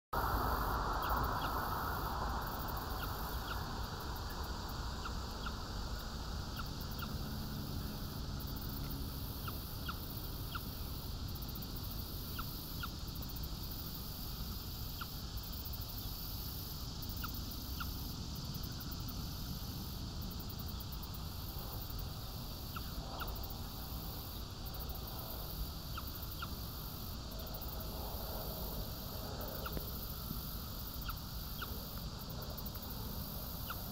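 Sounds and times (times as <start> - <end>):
low rumble and hiss: 0.2 - 33.9
high ticks: 21.4 - 33.9.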